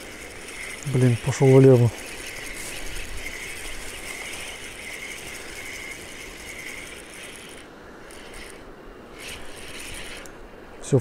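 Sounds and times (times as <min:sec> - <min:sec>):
fishing reel gear cranking: 0:00.0 - 0:10.4.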